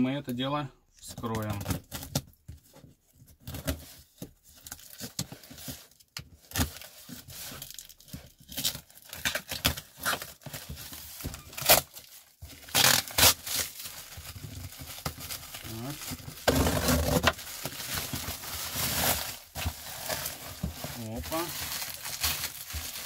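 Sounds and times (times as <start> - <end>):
plastic wrap crinkling and tearing: 3.4 - 23.0
knife slitting packing tape: 12.7 - 13.6.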